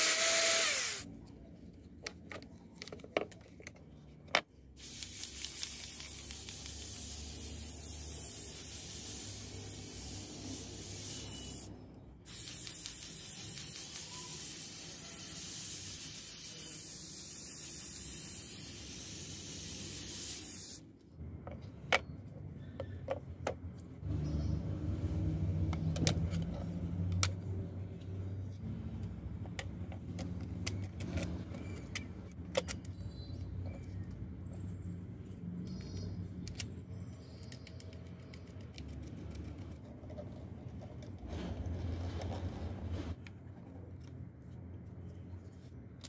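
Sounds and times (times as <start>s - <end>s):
spray paint hiss: 4.8s - 20.9s.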